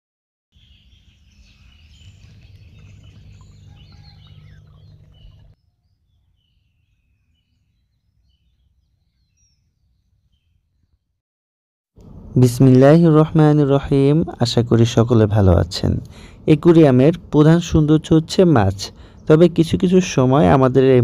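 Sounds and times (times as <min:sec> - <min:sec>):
birds chirping and singing: 0:00.6 - 0:11.0
low steady rumble: 0:01.5 - 0:05.6, 0:12.0 - 0:21.0.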